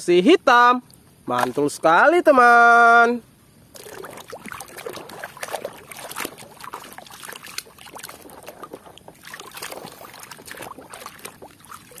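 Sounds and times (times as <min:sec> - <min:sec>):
water splashing in a plastic basin: 0:01.3 - 0:02.0, 0:03.7 - 0:12.0.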